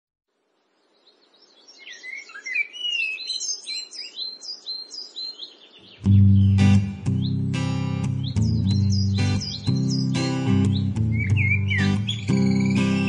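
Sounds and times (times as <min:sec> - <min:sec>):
songbirds chirping and whistling: 0:00.8 - 0:13.0
strummed acoustic guitar chord: 0:06.1 - 0:13.0.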